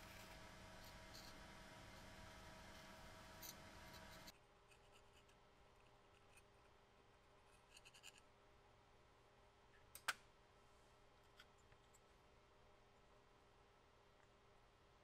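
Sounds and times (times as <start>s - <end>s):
low background hum: 0.0s - 15.0s
metal rod scraping and tapping: 2.7s - 5.3s.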